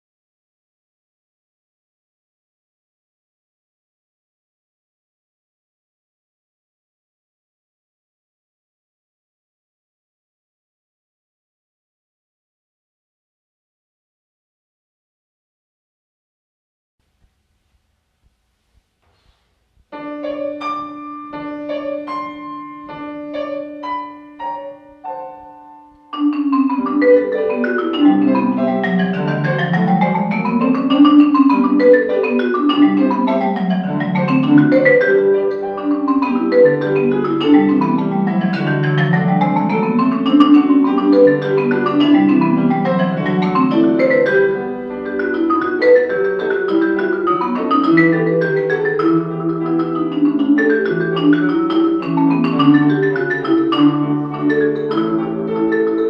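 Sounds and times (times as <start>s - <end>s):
piano accompaniment: 19.8s - 56.0s
marimba played with mallets: 20.0s - 56.0s.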